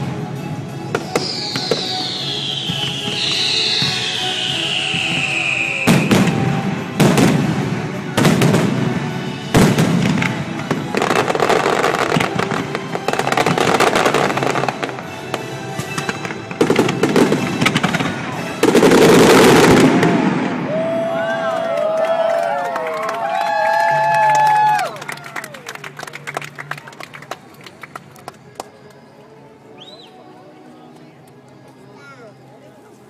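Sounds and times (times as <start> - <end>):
fireworks crackling: 0.0 - 21.4
music playing: 0.0 - 33.0
barrage of firework bursts: 1.0 - 15.2, 15.9 - 20.9.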